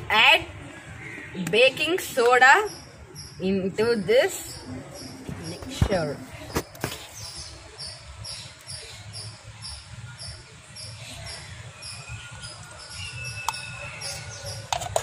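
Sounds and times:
high chirping: 7.0 - 14.7.

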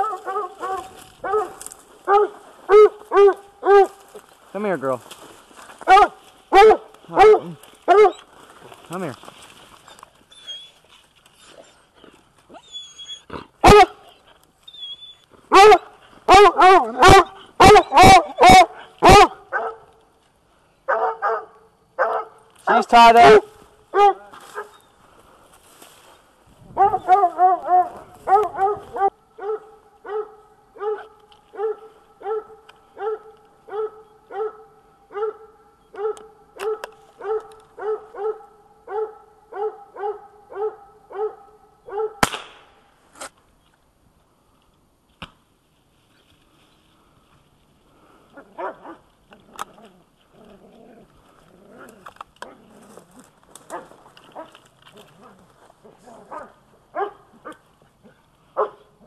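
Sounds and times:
dog barking: 0.0 - 4.0, 5.8 - 8.2, 13.6 - 14.0, 15.5 - 19.9, 20.9 - 24.7, 26.8 - 42.2, 48.6 - 49.0, 56.1 - 57.6, 58.6 - 58.9
dog yipping: 5.9 - 8.2, 10.3 - 10.8, 12.5 - 13.9, 14.7 - 19.8
rifle shot: 42.2 - 42.8.

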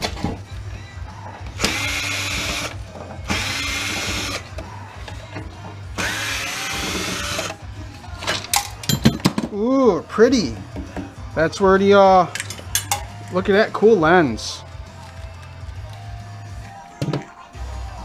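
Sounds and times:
cordless drill driving screws: 1.6 - 4.5, 6.0 - 7.6.

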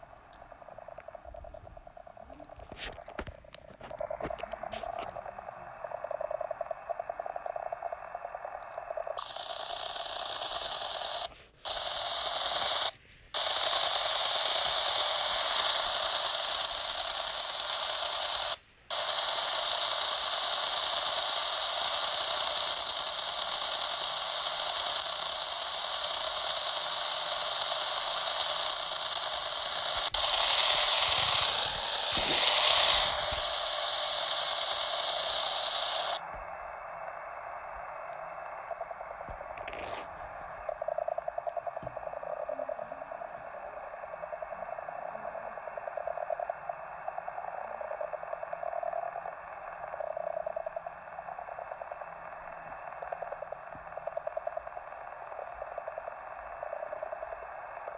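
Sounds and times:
radio band noise hiss: 0.0 - 57.9.

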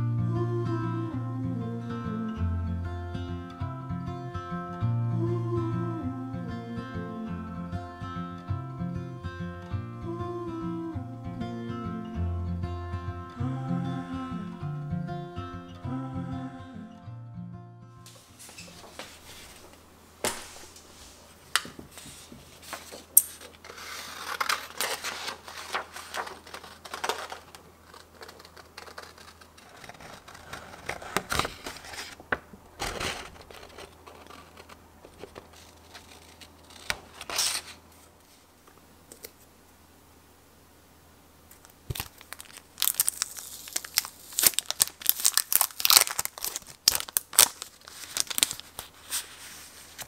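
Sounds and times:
paper rustling: 18.1 - 38.5, 41.6 - 50.0
scissors snipping paper: 23.2 - 32.0.

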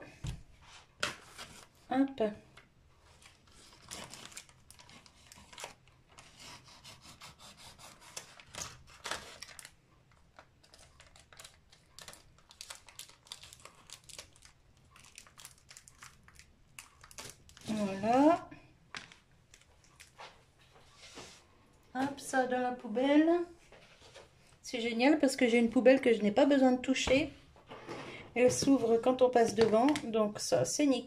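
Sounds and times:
thin plastic crinkling and tearing: 3.1 - 6.4, 7.9 - 18.2, 18.9 - 20.4.

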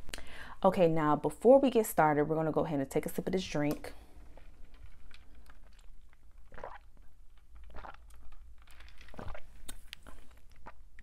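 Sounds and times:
person sipping and swallowing: 4.3 - 11.0.

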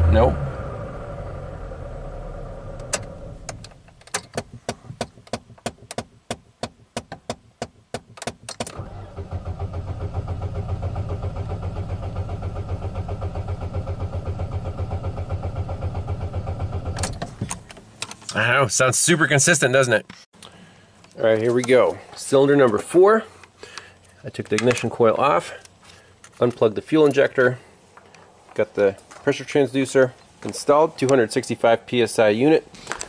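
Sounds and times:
engine cranking on starter: 8.7 - 17.2.

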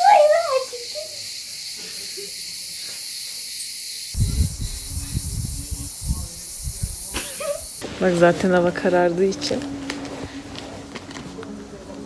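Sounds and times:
crickets chirring: 0.0 - 7.8
low bumps and rumbling: 4.2 - 7.0.

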